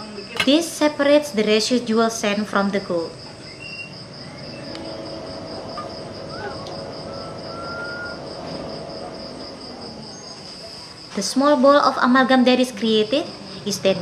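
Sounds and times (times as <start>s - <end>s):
high-pitched insect trill: 0.0s - 14.0s
low steady hum: 2.2s - 10.5s
faint short whistling notes: 6.3s - 8.3s.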